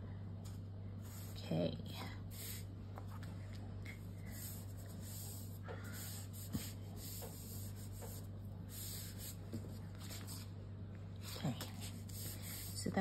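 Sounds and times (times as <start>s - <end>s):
paper rustling and rubbing: 2.4s - 10.5s, 11.3s - 13.0s.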